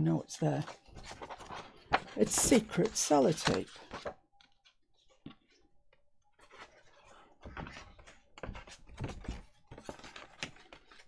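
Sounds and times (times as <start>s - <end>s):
paper rustling on tabletop: 0.6s - 5.6s, 6.3s - 11.0s.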